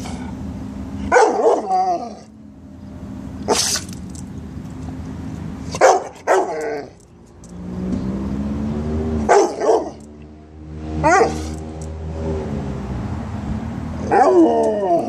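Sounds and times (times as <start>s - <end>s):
dog barking: 1.1s - 1.8s, 5.8s - 6.6s, 9.3s - 10.0s, 11.0s - 11.4s.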